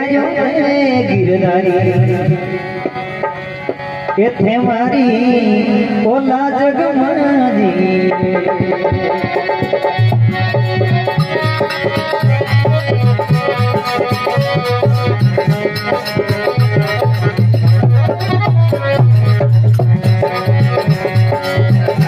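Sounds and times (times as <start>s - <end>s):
harmonium melody: 0.0s - 22.0s
hand drum rhythm: 7.9s - 22.0s.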